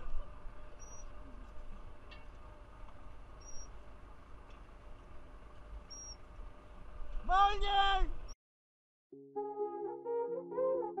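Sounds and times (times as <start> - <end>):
faint high squeaks: 0.8 - 1.2, 3.4 - 3.8.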